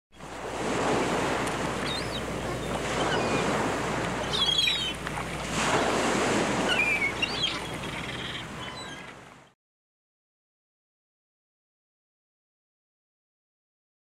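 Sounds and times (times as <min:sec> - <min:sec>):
sea surf breaking ashore: 0:00.1 - 0:09.6
wind: 0:00.1 - 0:09.6
short high bird calls: 0:04.2 - 0:05.0, 0:06.6 - 0:09.1.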